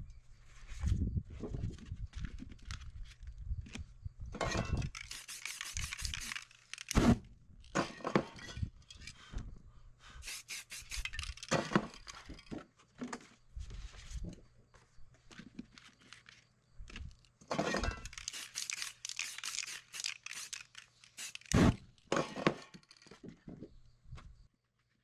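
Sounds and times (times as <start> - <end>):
cans being handled: 4.4 - 7.0, 10.2 - 13.3, 15.2 - 23.8
spray-paint can hissing: 4.9 - 7.0, 10.2 - 11.5, 18.0 - 21.6.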